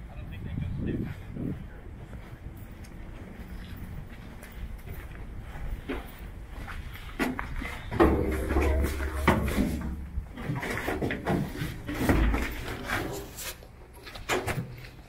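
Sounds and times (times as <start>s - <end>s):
low rumble: 0.0s - 12.9s
faint voices: 0.0s - 13.2s
footsteps on metal floor: 1.4s - 15.0s
knocks and thumps on metal: 7.2s - 13.0s.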